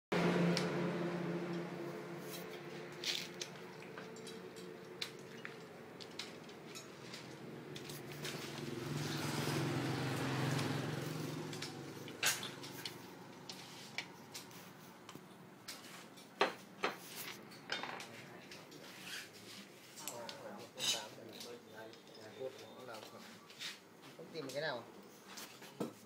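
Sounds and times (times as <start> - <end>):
metal parts and tools clicking: 2.3 - 8.4.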